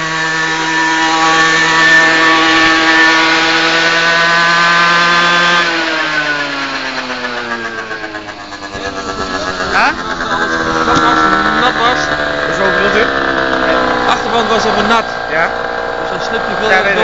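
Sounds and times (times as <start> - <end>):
two-stroke engine revving high: 0.0 - 17.0.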